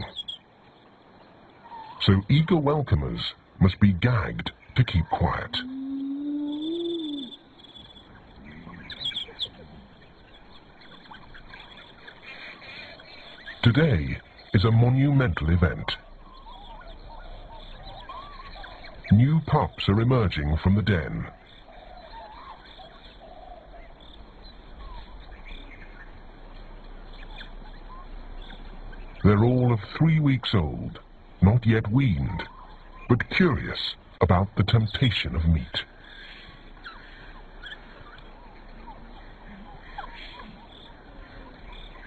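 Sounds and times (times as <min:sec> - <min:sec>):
faint short chirping calls: 0:00.0 - 0:03.6, 0:04.4 - 0:20.4, 0:21.1 - 0:42.0
steady background hiss: 0:00.0 - 0:42.0
wild dogs twittering and squeaking: 0:01.6 - 0:02.1, 0:05.1 - 0:20.0, 0:21.3 - 0:26.2, 0:36.0 - 0:42.0.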